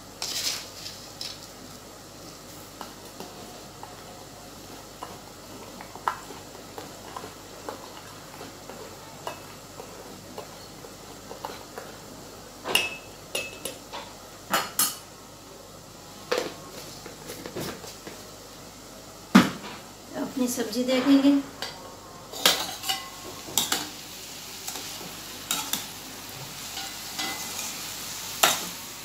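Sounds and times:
spoon stirring in steel pot: 2.7s - 12.0s.

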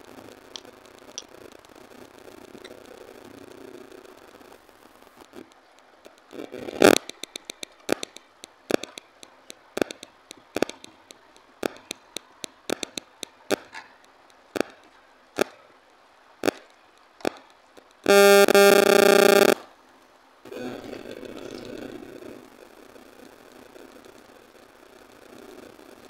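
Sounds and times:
electronic synthesizer tone: 18.1s - 19.6s.

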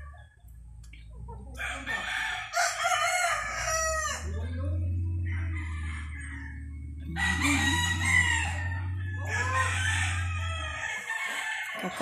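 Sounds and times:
roosters crowing: 1.6s - 4.5s, 5.2s - 12.0s
steady low hum: 3.2s - 10.8s.

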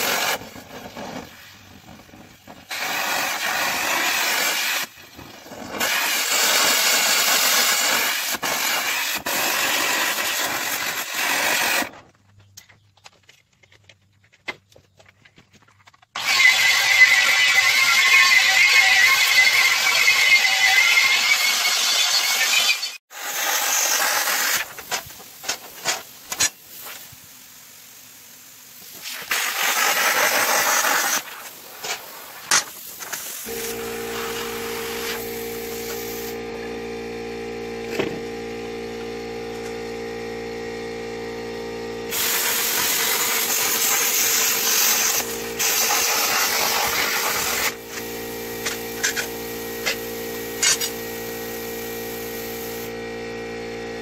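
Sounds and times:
plasma cutter torch hissing: 0.0s - 11.9s, 16.2s - 36.5s, 42.1s - 53.0s
air compressor humming: 32.9s - 54.0s.

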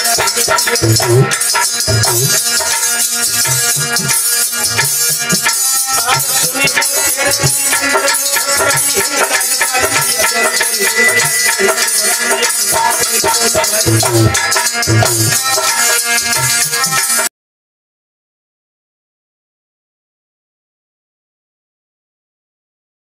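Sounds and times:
harmonium playing: 0.0s - 17.3s
shaking percussion: 0.0s - 17.3s
low drum beats: 0.1s - 7.9s, 12.7s - 15.7s.

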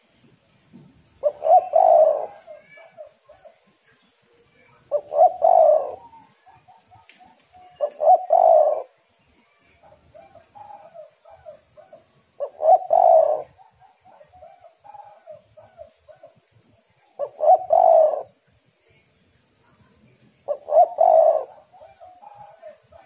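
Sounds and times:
dove cooing: 1.2s - 3.7s, 4.7s - 9.0s, 9.8s - 18.4s, 20.5s - 23.0s.

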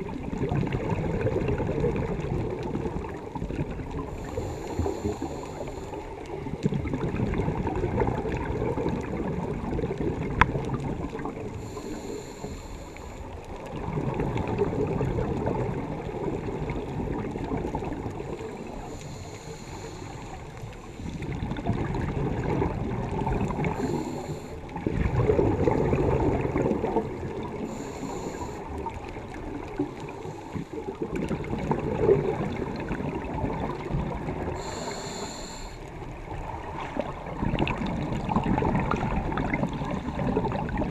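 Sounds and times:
diver breathing through regulator: 4.1s - 6.2s, 11.5s - 13.3s, 18.4s - 21.4s, 23.4s - 24.8s, 27.4s - 28.9s, 34.4s - 36.0s.

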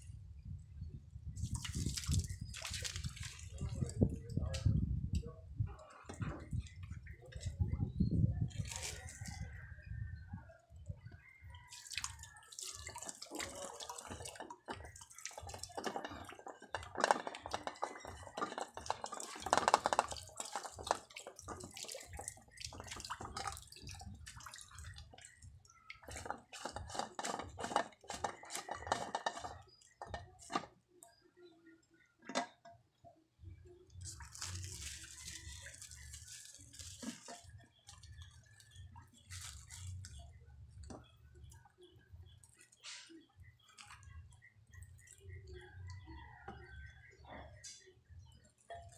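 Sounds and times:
water dripping and splashing: 1.3s - 4.7s, 8.5s - 9.6s, 11.5s - 30.7s, 33.9s - 46.0s
plastic clicks and scraping: 14.6s - 21.6s, 25.9s - 31.1s.

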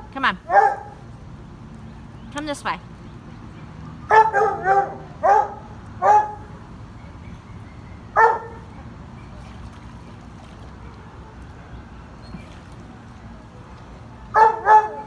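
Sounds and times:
dog barking: 0.5s - 1.0s, 4.1s - 6.4s, 8.2s - 8.6s, 14.4s - 15.0s.

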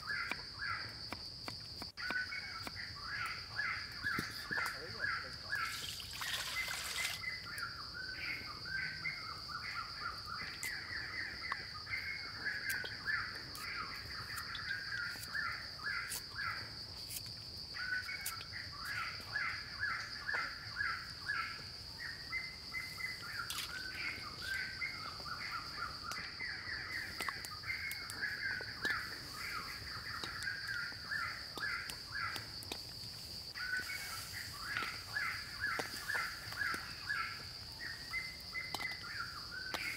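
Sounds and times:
birds calling: 2.0s - 16.7s, 17.7s - 32.6s
high-pitched insect drone: 2.3s - 16.7s
water poured into a steel wok: 5.7s - 7.2s.

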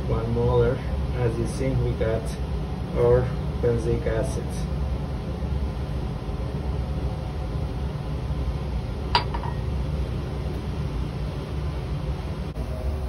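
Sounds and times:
ventilation hum: 0.0s - 13.0s
glass clink: 9.2s - 9.6s.

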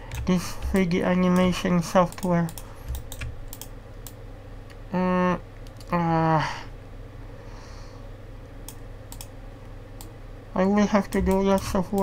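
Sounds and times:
keyboard and mouse clicks: 0.0s - 4.8s, 5.6s - 6.0s, 8.6s - 9.3s, 11.0s - 12.0s.

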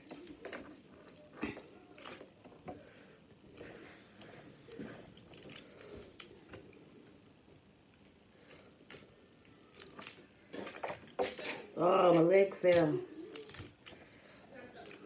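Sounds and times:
biting and chewing: 3.5s - 7.0s, 7.9s - 14.1s.

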